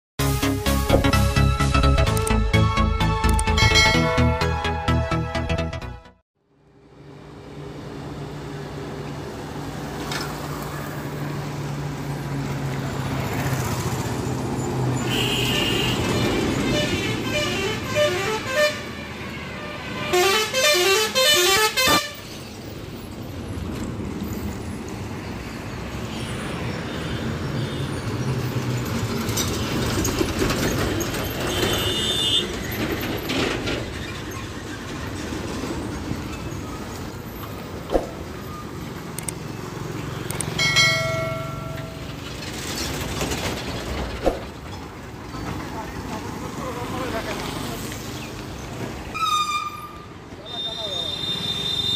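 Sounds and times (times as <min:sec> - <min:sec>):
truck horns: 0:03.3 - 0:05.2, 0:15.0 - 0:22.4, 0:31.4 - 0:32.8, 0:49.1 - 0:51.9
trucks and motorbikes driving past: 0:06.6 - 0:49.1.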